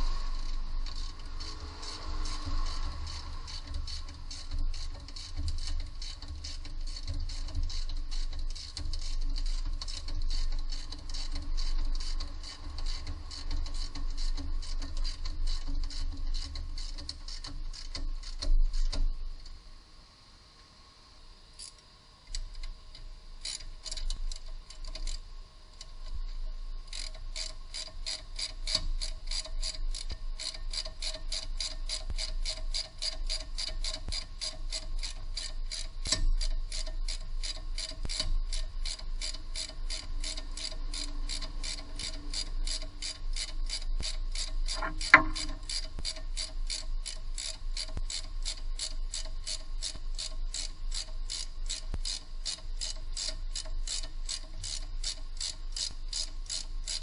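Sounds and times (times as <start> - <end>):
ratchet wrench clicking: 0.0 - 19.1, 21.6 - 26.2, 26.9 - 57.0
sharp knock: 44.8 - 45.5.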